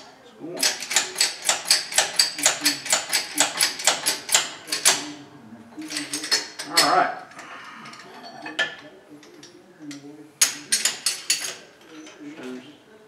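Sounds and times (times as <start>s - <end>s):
steel tools clinking: 5.8s - 7.0s.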